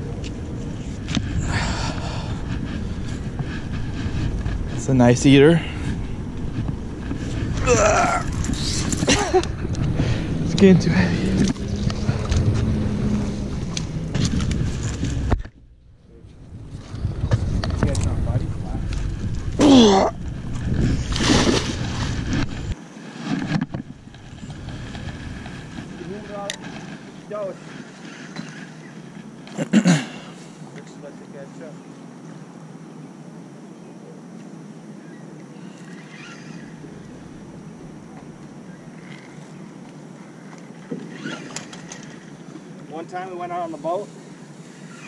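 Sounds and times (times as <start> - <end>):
wind buffeting microphone: 0.0 - 22.8
river ambience: 0.0 - 45.0
fishing rod and reel clicks: 39.0 - 42.3.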